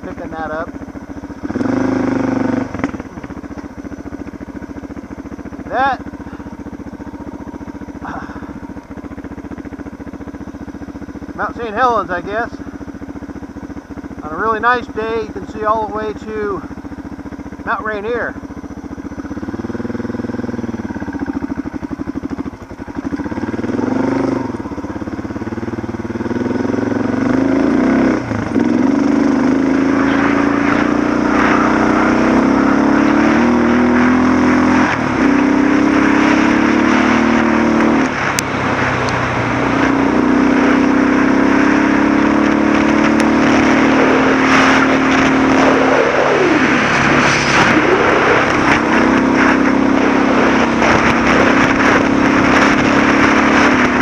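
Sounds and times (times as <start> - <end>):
motorcycle engine running: 0.0 - 54.0
wind and tyre rushing: 18.4 - 54.0.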